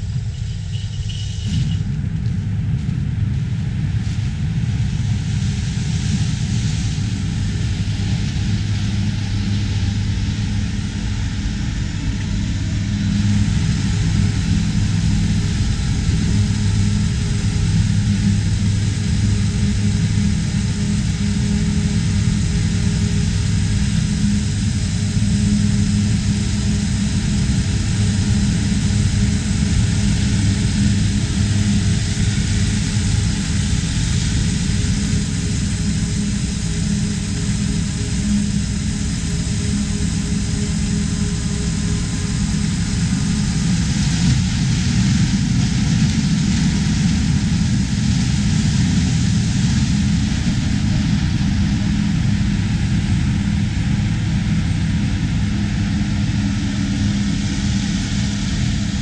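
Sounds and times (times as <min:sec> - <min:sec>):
mechanical drone with low hum: 0:00.0 - 0:59.0.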